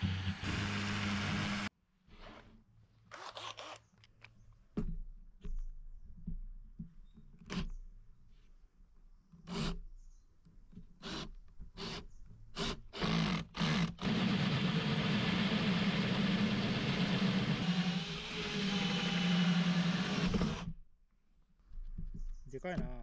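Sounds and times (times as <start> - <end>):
electric power tool running: 0.0 - 1.7, 14.0 - 20.7.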